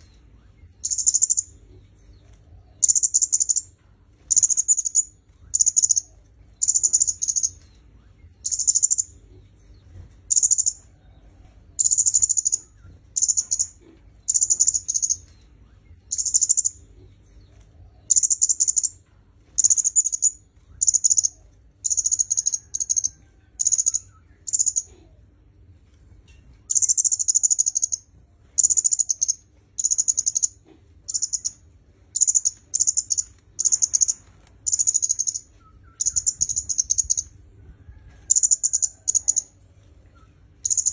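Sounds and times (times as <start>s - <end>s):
bird trilled chirps: 0.0s - 1.6s, 2.8s - 9.2s, 10.3s - 10.8s, 11.8s - 15.4s, 16.0s - 16.8s, 18.1s - 19.0s, 19.6s - 25.0s, 26.7s - 37.4s, 38.3s - 39.6s, 40.2s - 40.9s.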